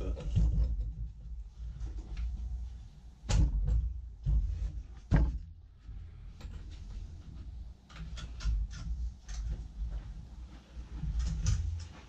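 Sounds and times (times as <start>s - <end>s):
light clicks and taps: 6.4s - 10.1s.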